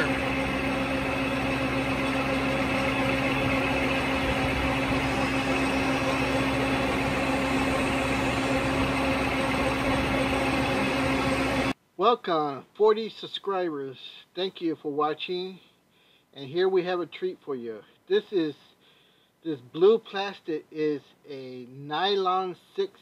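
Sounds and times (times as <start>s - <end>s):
lathe running: 0.0s - 11.8s.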